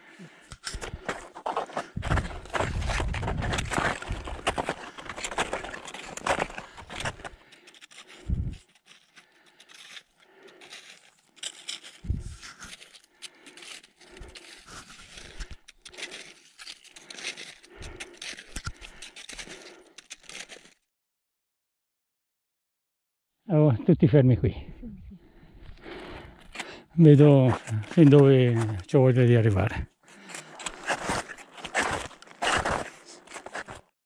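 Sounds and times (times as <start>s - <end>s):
footsteps crunching on snow: 1.0s - 7.4s, 30.3s - 33.9s.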